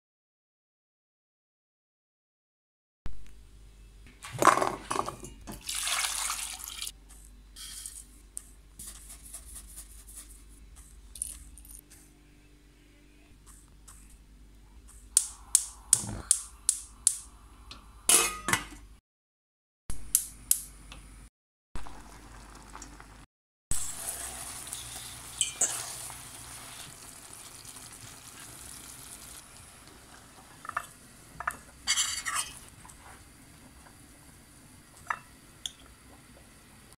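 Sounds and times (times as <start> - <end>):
glaze simmering hiss: 22.0 - 37.0
metal spoon clinking in a pot: 25.4 - 25.9.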